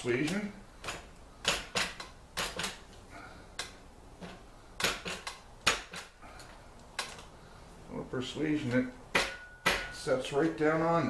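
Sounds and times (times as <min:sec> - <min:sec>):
metal-on-metal knocks and clanks: 0:09.1 - 0:10.1.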